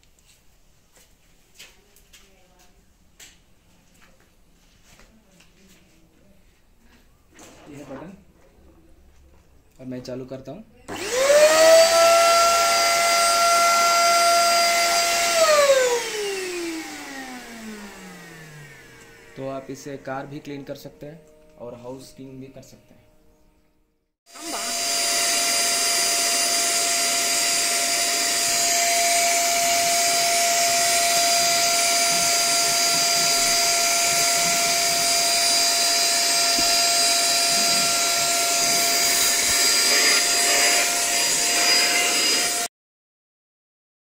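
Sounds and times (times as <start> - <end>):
vacuum cleaner running: 10.9 - 21.5, 24.3 - 42.7.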